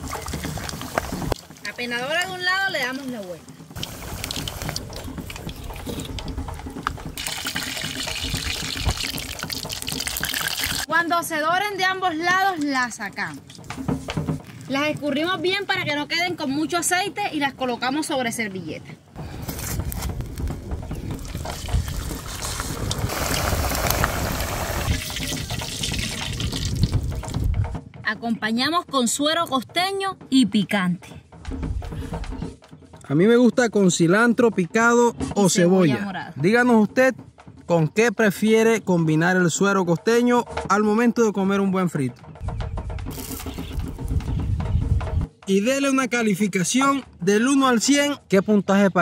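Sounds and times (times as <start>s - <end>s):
food deep-frying in oil: 3.1s - 6.4s, 7.2s - 10.9s, 21.1s - 27.0s.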